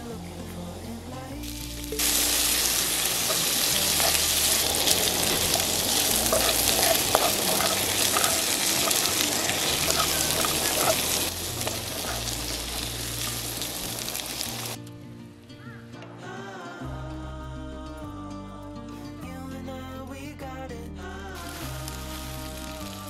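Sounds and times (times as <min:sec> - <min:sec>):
food sizzling in frying pan: 0:01.4 - 0:14.8, 0:21.4 - 0:23.0.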